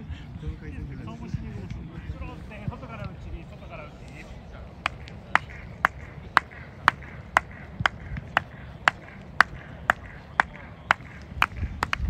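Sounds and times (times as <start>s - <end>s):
hand claps in even beat: 4.8s - 12.0s.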